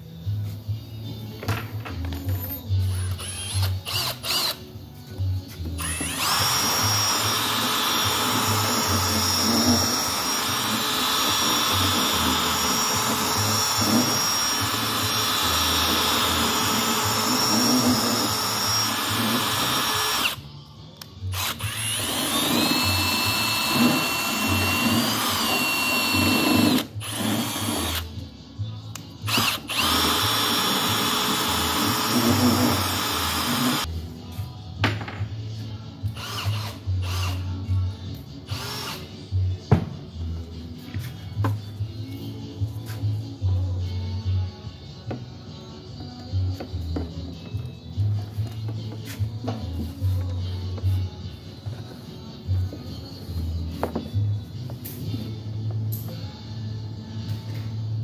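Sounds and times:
cordless drill whining: 0:02.8 - 0:04.6, 0:05.7 - 0:20.4, 0:21.3 - 0:28.1, 0:29.3 - 0:33.9, 0:38.6 - 0:39.0.

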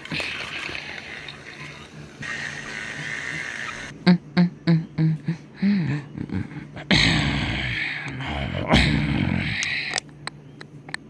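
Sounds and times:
person making clipped vocal noises: 0:06.2 - 0:10.0.

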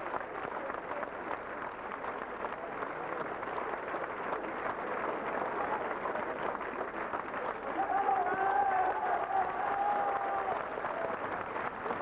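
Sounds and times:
crowd din of voices: 0:04.4 - 0:12.0.

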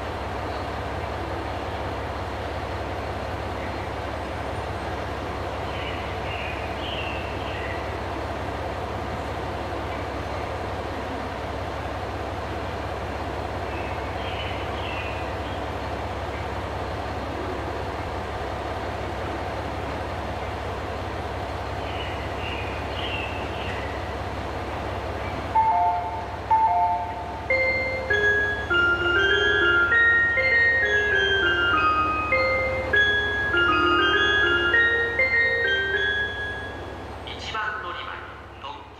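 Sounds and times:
street traffic: 0:00.0 - 0:38.9
tram rumbling: 0:00.0 - 0:38.9
electronic chime melody: 0:25.6 - 0:36.9.

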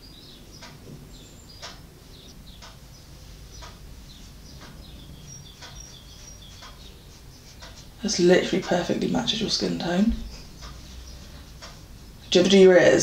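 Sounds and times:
faint high bird chirps: 0:00.0 - 0:07.6
wall clock ticking: 0:00.0 - 0:13.0.

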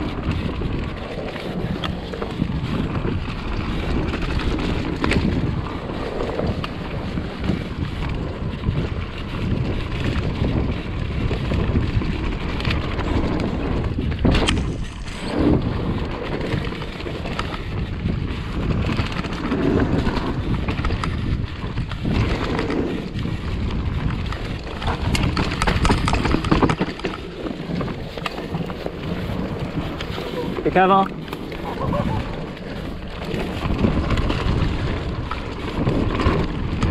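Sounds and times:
bike tyre and frame noise: 0:00.0 - 0:36.9
wind rushing over microphone: 0:00.0 - 0:36.9.

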